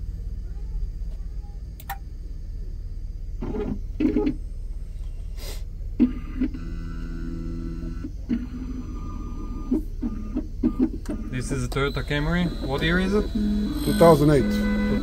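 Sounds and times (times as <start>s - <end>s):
pitched machine whine: 0.0s - 15.0s
mechanical carriage whirring: 6.0s - 15.0s
key-cutting machine motor hum: 6.1s - 15.0s.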